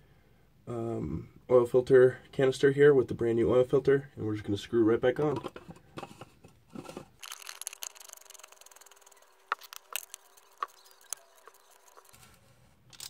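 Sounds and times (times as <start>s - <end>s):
faint scraping handling noise: 5.2s - 13.0s
oil filter being screwed on: 5.3s - 12.2s.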